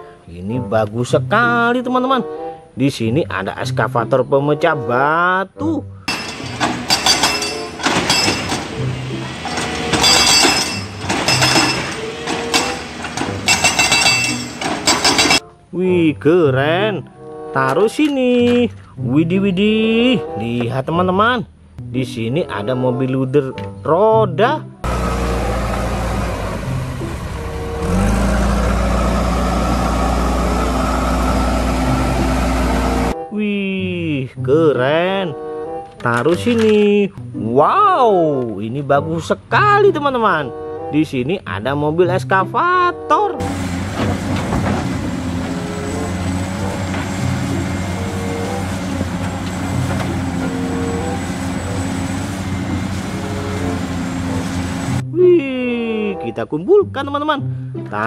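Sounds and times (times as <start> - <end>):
diesel engines running: 6.1 - 15.4, 24.8 - 33.2, 43.4 - 55.0
water splashing from wheels: 24.9 - 33.2, 43.4 - 55.0.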